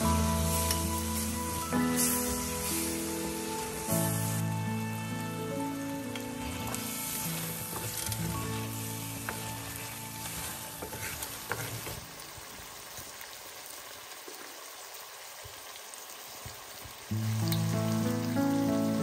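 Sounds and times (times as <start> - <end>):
background music: 0.0 - 11.8, 17.1 - 19.0
curry sizzling in a pot: 0.0 - 19.0
wooden spoon stirring: 6.4 - 12.1.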